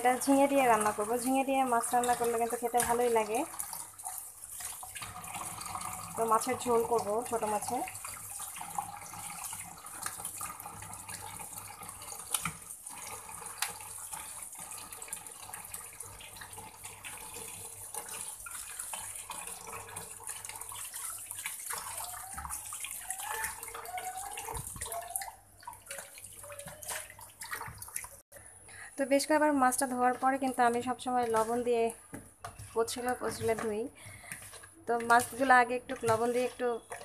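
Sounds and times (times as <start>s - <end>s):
hands rinsing fish: 0.0s - 28.2s
water splashing: 0.0s - 28.2s
hand swishing fish in water: 21.0s - 28.2s.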